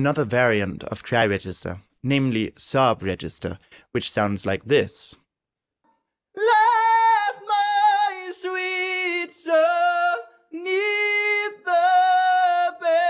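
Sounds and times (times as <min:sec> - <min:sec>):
man singing unaccompanied: 0:06.3 - 0:13.0.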